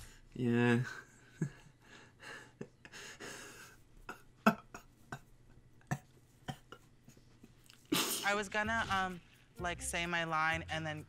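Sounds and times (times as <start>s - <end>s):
soft breaths: 0.0s - 4.2s.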